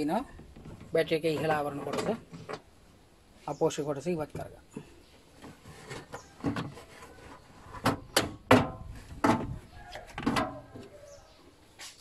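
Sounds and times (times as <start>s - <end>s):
plastic panel knocks and clatter: 5.4s - 6.9s, 7.7s - 10.8s.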